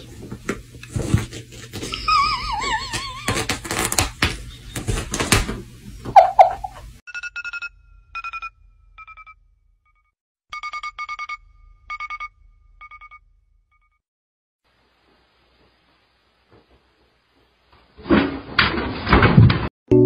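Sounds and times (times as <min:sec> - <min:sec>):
electronic alarm beeping: 0:10.6 - 0:13.2.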